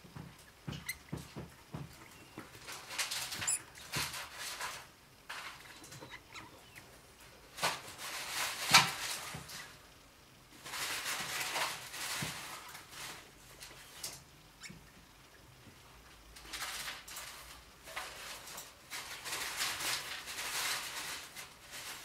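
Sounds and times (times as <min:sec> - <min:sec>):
paper rustling and crinkling: 0:01.7 - 0:06.1, 0:07.2 - 0:09.8, 0:10.6 - 0:14.2, 0:16.4 - 0:22.0.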